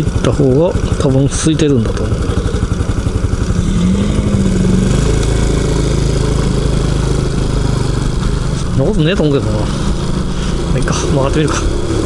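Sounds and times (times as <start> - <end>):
road and wind noise: 0.0 - 12.0
small motorcycle engine running: 0.0 - 12.0.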